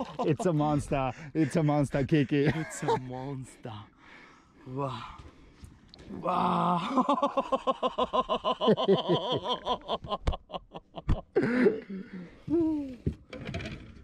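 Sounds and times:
man laughing excitedly: 0.0s - 3.3s, 6.7s - 11.8s.

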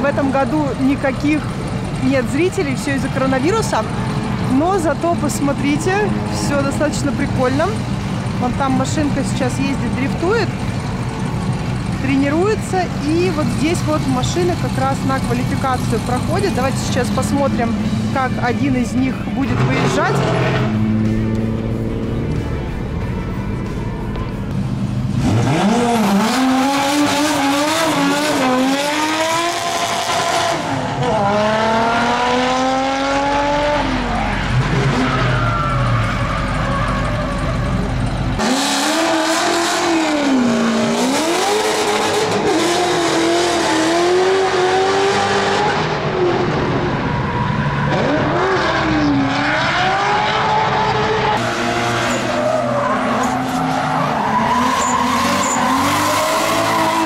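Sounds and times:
car engines revving hard: 0.0s - 57.0s
tyres squealing and skidding: 23.5s - 57.0s.

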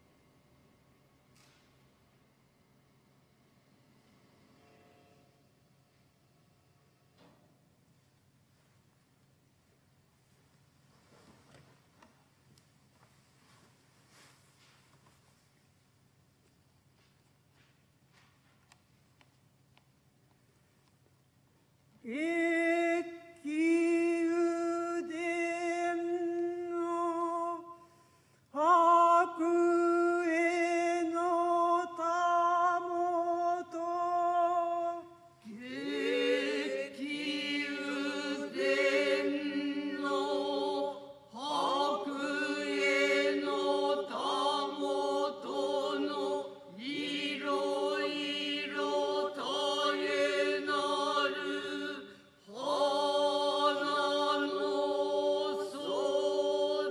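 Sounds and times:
chorus chanting in unison: 34.8s - 56.9s.

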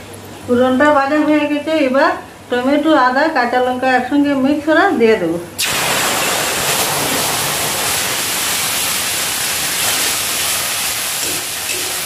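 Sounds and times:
paste sizzling in hot oil: 5.6s - 12.0s.

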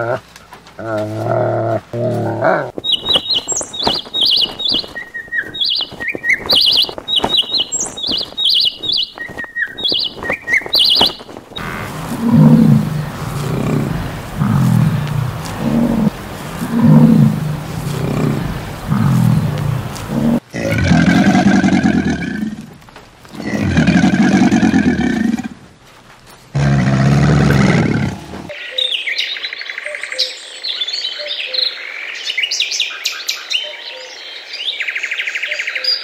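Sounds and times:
animal low grunts: 0.0s - 2.8s, 11.6s - 25.6s, 26.5s - 28.6s
birds chirping and trilling: 0.8s - 22.6s, 26.6s - 36.0s
loud low growls: 11.6s - 25.6s, 26.6s - 28.5s.

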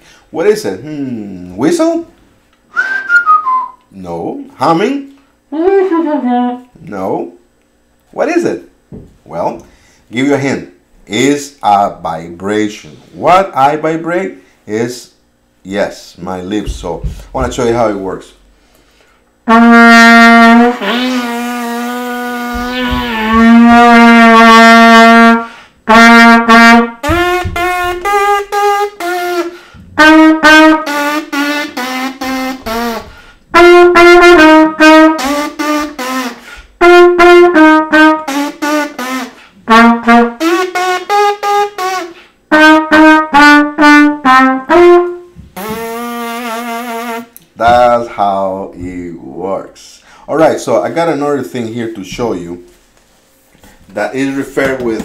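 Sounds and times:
solo trumpet: 19.4s - 47.4s.

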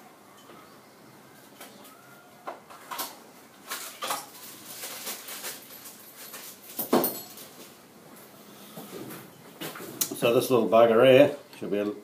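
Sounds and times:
metal parts and tools clinking: 3.7s - 7.8s.

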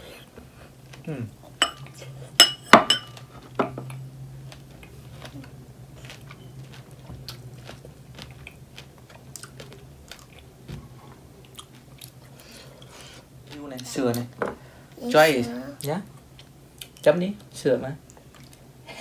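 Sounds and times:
people chewing strawberries: 0.0s - 2.3s, 3.9s - 14.2s, 18.0s - 19.0s
ceramic bowls clinking: 1.6s - 3.9s.

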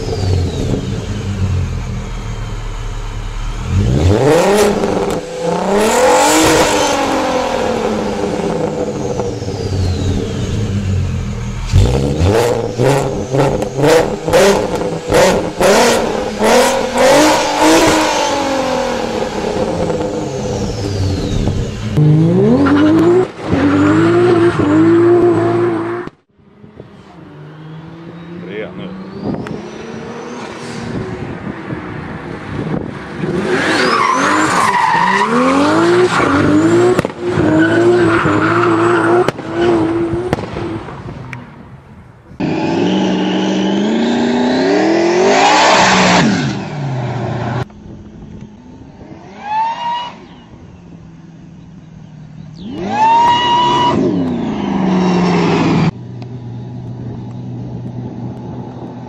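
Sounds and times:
supercharged engine revving: 0.0s - 26.3s, 32.5s - 40.8s, 42.4s - 47.7s, 52.5s - 56.0s
car engines revving: 0.0s - 59.0s.

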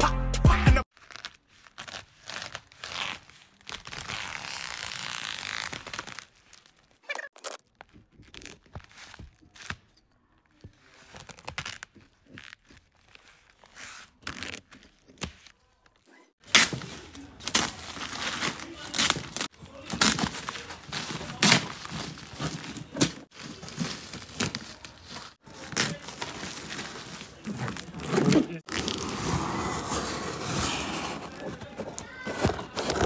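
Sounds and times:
plastic rustling: 16.4s - 33.0s
plastic sack tearing: 16.4s - 33.0s.

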